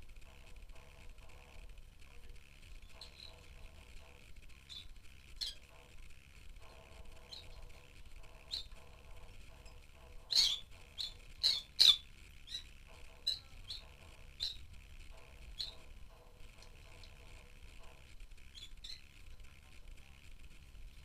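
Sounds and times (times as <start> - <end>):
lovebirds chirping: 2.8 - 5.9, 6.7 - 17.9, 18.5 - 19.1.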